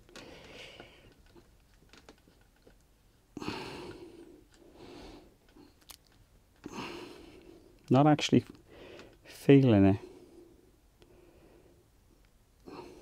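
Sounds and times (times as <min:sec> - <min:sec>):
person breathing out: 0:03.4 - 0:05.3, 0:06.6 - 0:07.5.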